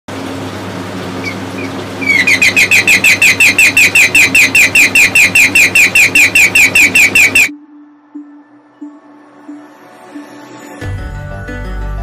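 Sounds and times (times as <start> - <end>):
steady hum: 0.1 - 9.0
electronic bird-chirp alarm: 2.0 - 7.6.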